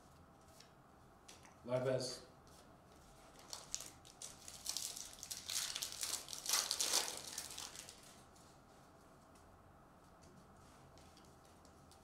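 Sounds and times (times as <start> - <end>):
wrapper tearing and crinkling: 3.3 - 8.2.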